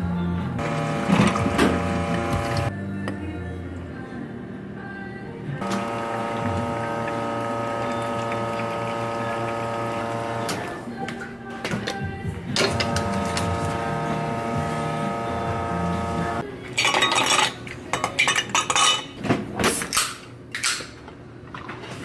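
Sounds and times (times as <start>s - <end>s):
steady hum: 0.6s - 2.7s, 5.4s - 11.0s, 12.1s - 16.5s
glass and ice clinking: 16.8s - 19.1s.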